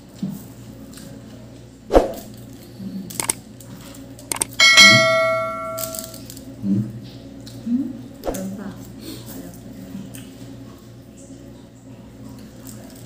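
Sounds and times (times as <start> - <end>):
quick clicks: 3.2 - 3.4, 4.3 - 4.6
bright bell ding: 4.3 - 6.2.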